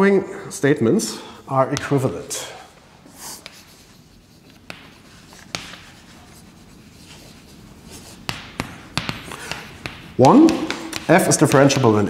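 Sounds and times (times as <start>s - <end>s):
chalk scratching on blackboard: 3.1s - 12.0s
chalk tapping on blackboard: 3.3s - 12.0s.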